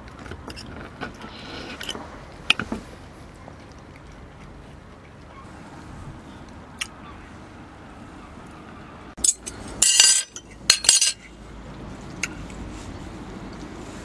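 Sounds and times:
cutlery clinking on ceramic plate: 0:09.2 - 0:11.2.

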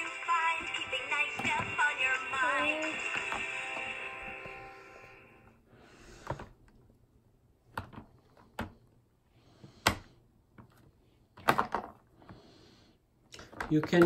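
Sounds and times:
toy electronic song: 0:00.0 - 0:05.4.

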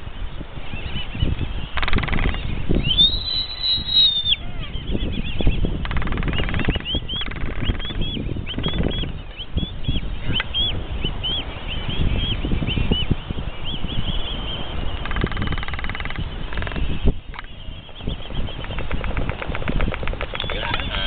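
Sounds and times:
albatross colony calling: 0:05.7 - 0:08.0, 0:18.2 - 0:21.0
albatross bill-clacking: 0:05.8 - 0:08.0, 0:14.9 - 0:17.6, 0:18.2 - 0:21.0
drawn-out high albatross call: 0:15.0 - 0:17.5, 0:19.0 - 0:21.0.

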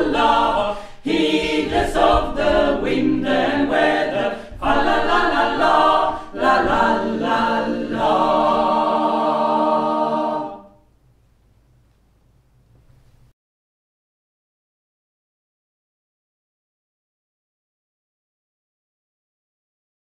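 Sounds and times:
mixed choir singing unaccompanied: 0:00.0 - 0:10.8.

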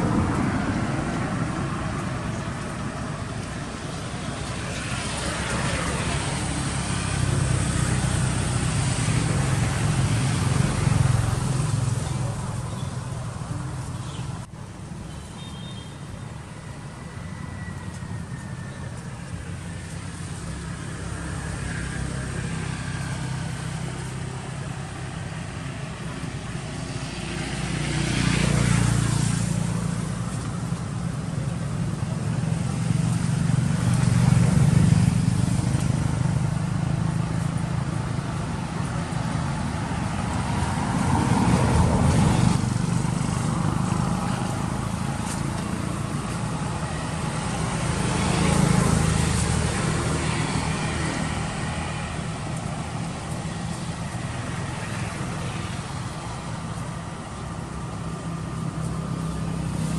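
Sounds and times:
passing vehicle engines: 0:00.0 - 0:59.9.

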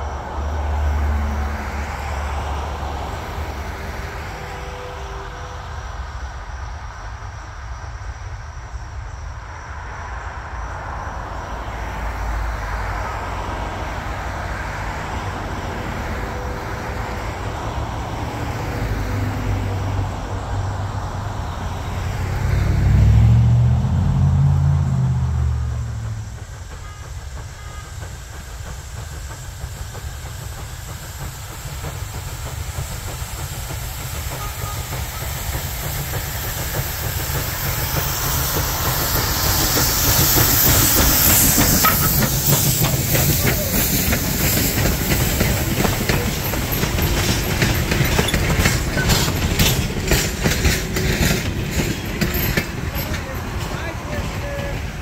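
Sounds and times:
steam locomotive rumble: 0:00.0 - 0:55.0
wheels clacking over rail joints: 0:25.1 - 0:55.0
steam hissing from cylinders: 0:25.7 - 0:55.0.

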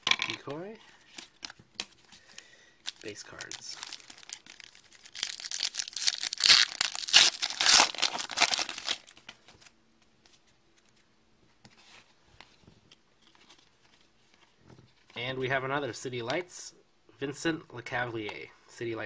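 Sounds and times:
wrapper tearing and crinkling: 0:02.8 - 0:09.2.

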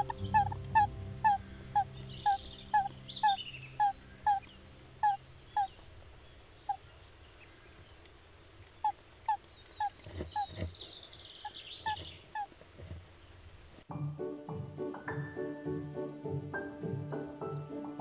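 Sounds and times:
owl chicks cheeping: 0:00.0 - 0:05.8, 0:08.8 - 0:12.5.

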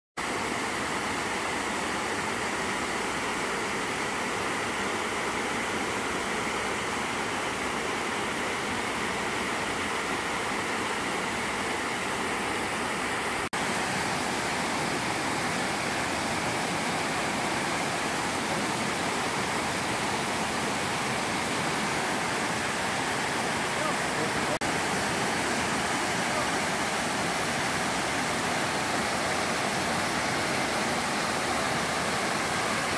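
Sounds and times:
water rushing over rocks: 0:00.2 - 0:32.9.

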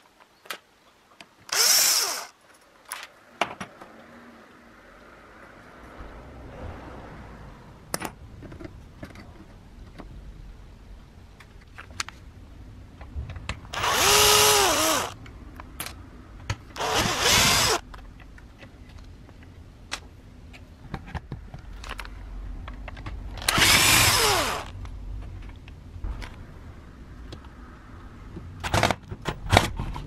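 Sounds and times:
power drill spinning: 0:01.5 - 0:02.4, 0:13.7 - 0:15.2, 0:16.8 - 0:17.8, 0:23.4 - 0:24.7.

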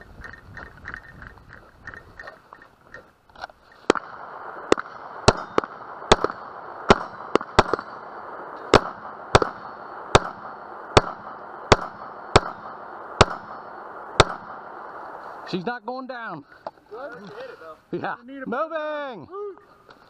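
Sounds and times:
steady hiss: 0:02.2 - 0:20.0
gunshots: 0:03.8 - 0:15.5.

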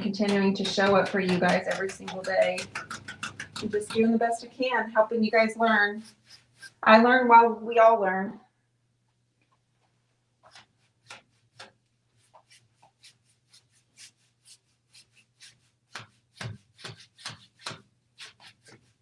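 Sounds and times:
paintbrush scratchy strokes on wood: 0:00.2 - 0:04.4, 0:05.3 - 0:06.9, 0:10.4 - 0:19.0.

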